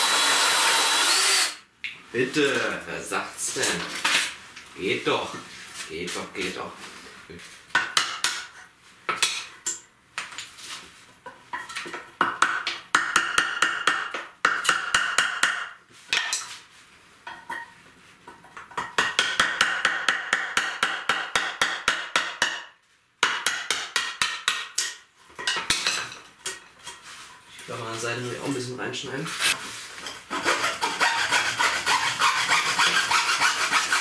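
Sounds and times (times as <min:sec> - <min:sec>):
hammer striking chisel: 0:07.8 - 0:08.5, 0:11.9 - 0:16.4, 0:18.7 - 0:25.9.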